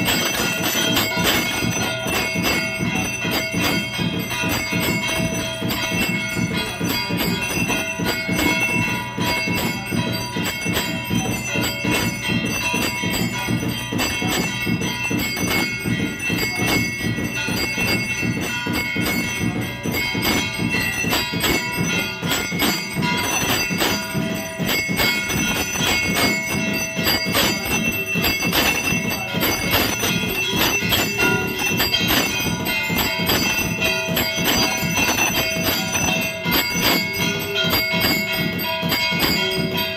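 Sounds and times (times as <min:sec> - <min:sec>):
temple bells ringing rapidly: 0:00.0 - 0:39.9.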